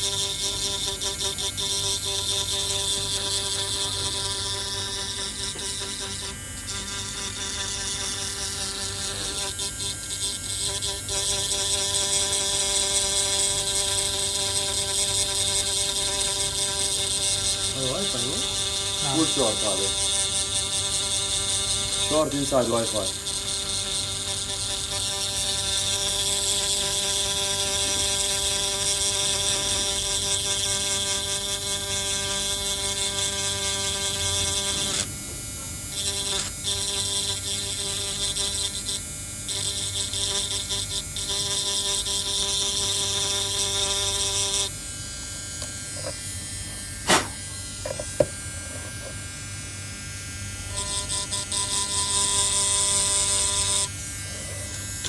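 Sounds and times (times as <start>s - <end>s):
electric grinding pen whine: 0.0s - 55.0s.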